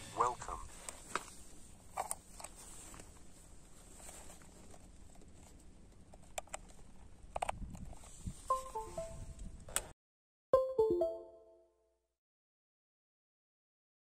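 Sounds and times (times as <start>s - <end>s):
electronic chime: 8.5s - 9.3s, 10.6s - 11.6s.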